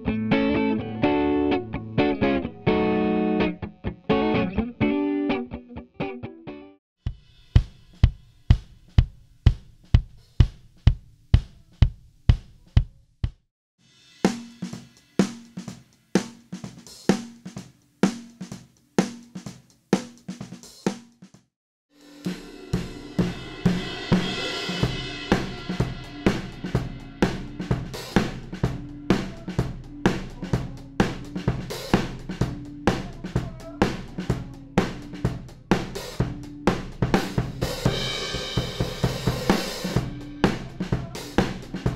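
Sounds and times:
cymbals and hi-hat: 0:07.0 - 0:12.8, 0:13.8 - 0:41.9
snare drum: 0:07.1 - 0:13.4, 0:14.2 - 0:41.9
kick drum: 0:07.1 - 0:13.5.

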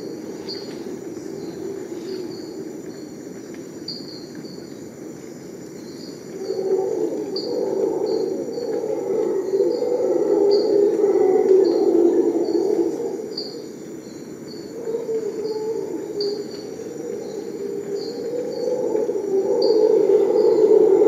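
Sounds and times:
high insect drone: 0:00.0 - 0:21.0.

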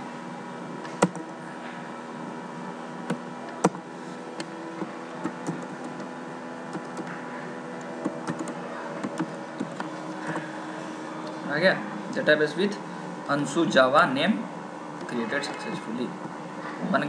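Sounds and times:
steady background hum: 0:00.0 - 0:17.0
computer keyboard typing: 0:01.0 - 0:01.2, 0:05.2 - 0:06.1, 0:06.7 - 0:07.1, 0:08.0 - 0:10.5.

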